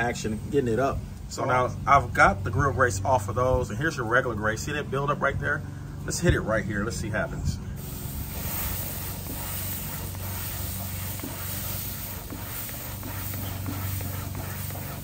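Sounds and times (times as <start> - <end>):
brush scrubbing grill grate: 7.8 - 15.0
steam hissing and sizzling: 7.8 - 15.0.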